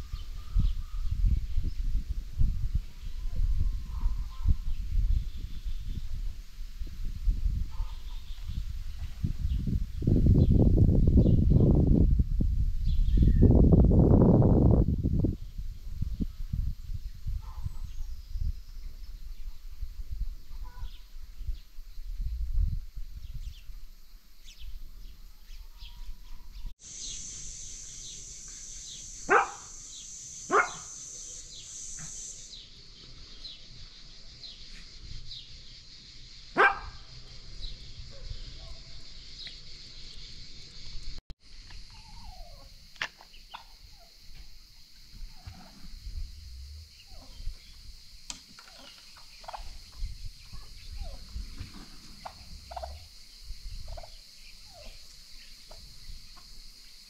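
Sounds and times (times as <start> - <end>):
steady high hiss: 26.8 - 57.0.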